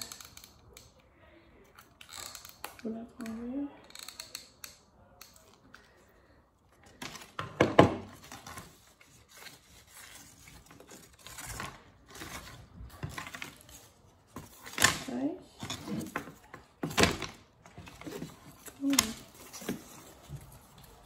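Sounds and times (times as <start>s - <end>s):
stiff paper rustling and crinkling: 8.1s - 21.0s.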